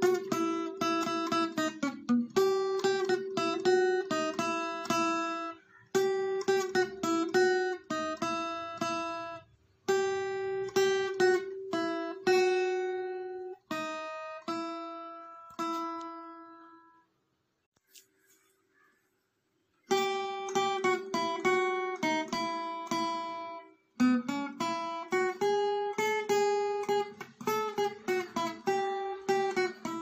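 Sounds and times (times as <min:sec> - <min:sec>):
acoustic guitar plucked melody: 0:00.0 - 0:17.1, 0:19.8 - 0:30.0.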